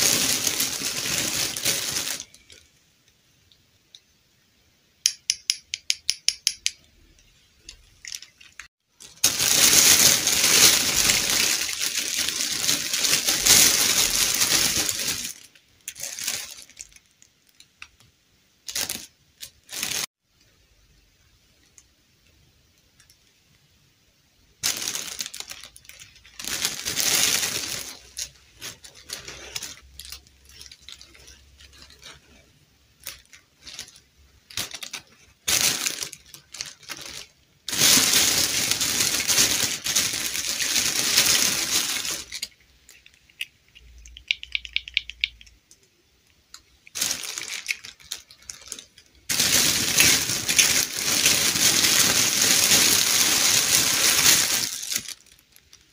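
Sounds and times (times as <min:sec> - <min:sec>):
plastic bag crinkling: 0:00.0 - 0:02.7, 0:07.6 - 0:18.0, 0:18.6 - 0:20.1, 0:24.6 - 0:45.4, 0:46.5 - 0:55.9
plastic doll parts clicking: 0:05.0 - 0:08.7, 0:42.2 - 0:49.1.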